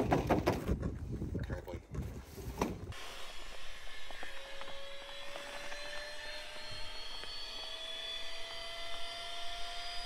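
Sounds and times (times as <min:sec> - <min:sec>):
droning motor whine: 0:02.9 - 0:10.0.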